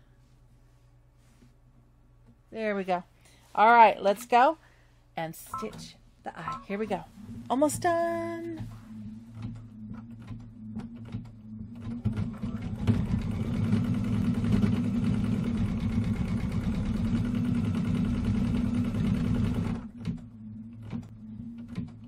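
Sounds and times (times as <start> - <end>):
embroidery machine stitching: 10.2 - 20.1.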